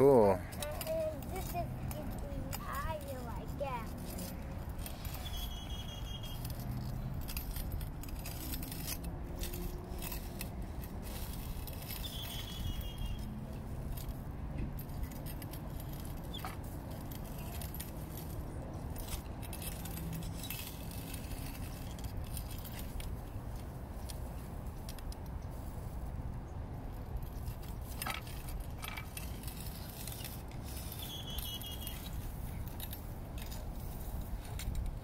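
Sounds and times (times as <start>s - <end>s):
metal digger clinking and rattling: 0.0s - 23.7s.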